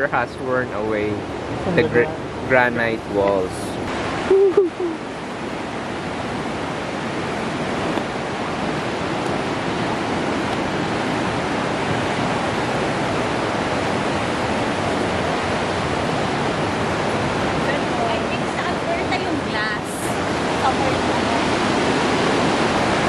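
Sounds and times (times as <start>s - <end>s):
river water rushing: 0.0s - 23.0s
short voice sound: 1.7s - 2.7s.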